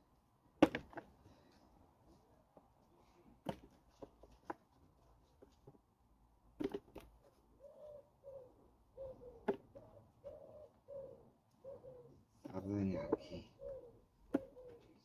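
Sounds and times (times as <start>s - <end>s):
pigeon cooing: 7.5s - 15.0s.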